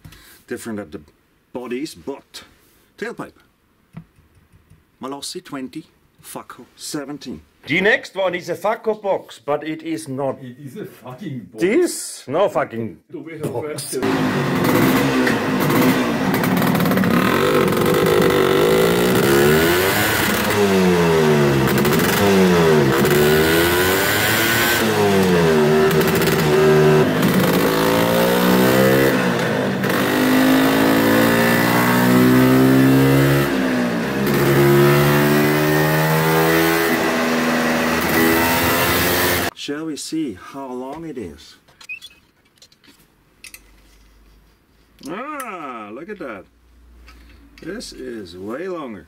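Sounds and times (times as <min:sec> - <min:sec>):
two-stroke scooter engine revving: 0:14.0 - 0:39.5.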